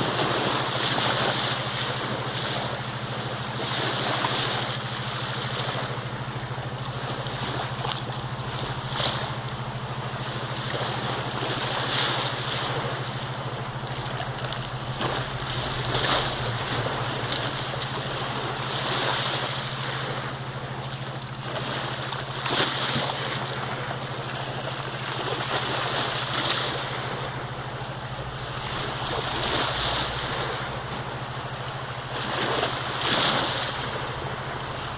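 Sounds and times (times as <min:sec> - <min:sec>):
small waves washing ashore: 0:00.0 - 0:34.9
steady low hum: 0:00.0 - 0:34.9.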